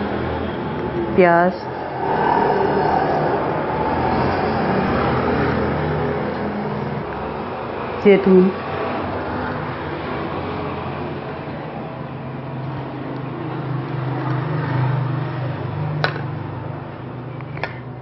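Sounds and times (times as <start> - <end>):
noisy rumble: 0.0 - 8.5.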